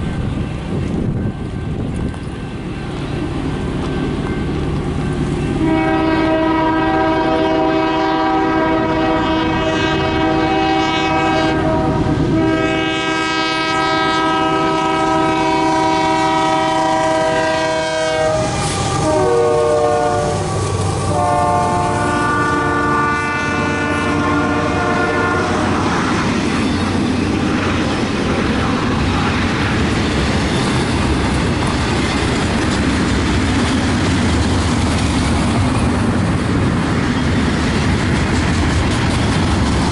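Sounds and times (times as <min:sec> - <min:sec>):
train cars rumbling on rails: 0:00.0 - 0:39.9
locomotive air horn blasts: 0:05.6 - 0:26.2.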